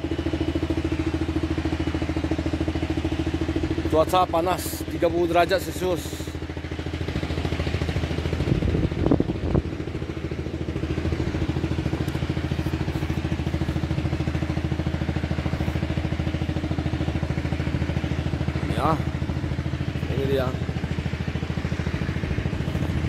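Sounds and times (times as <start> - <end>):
motorboat engine chugging: 0.0 - 23.0.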